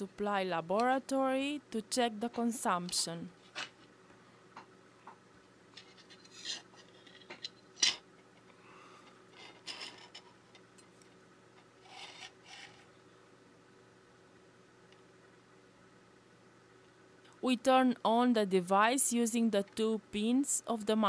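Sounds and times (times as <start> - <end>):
scrapes and rustles: 5.7 - 7.5.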